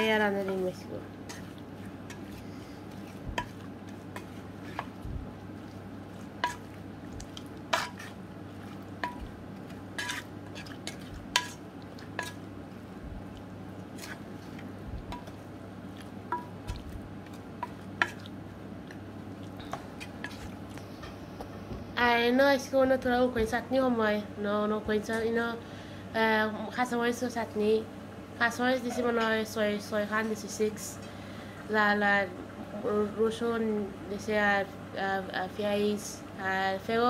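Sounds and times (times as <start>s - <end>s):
wooden spatula stirring in pot: 0.0s - 21.6s
steady low hum: 0.0s - 37.0s.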